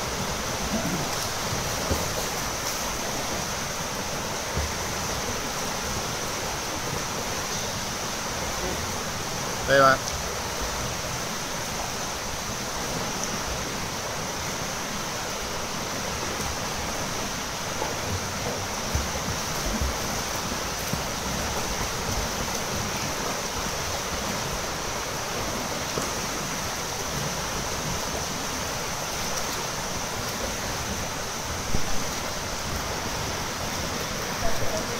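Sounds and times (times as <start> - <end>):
swimmers splashing water: 0.0 - 11.0, 16.0 - 28.5.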